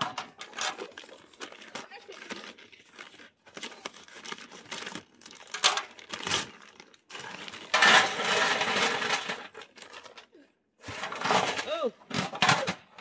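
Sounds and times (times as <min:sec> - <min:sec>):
paper bag crinkling and tearing: 0:00.6 - 0:09.0
charcoal pouring into metal grill: 0:07.2 - 0:09.8.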